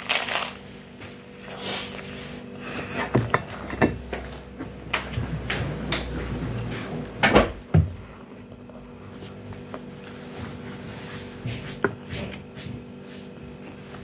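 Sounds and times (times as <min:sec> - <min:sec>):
knocks and thumps: 0:04.9 - 0:08.1.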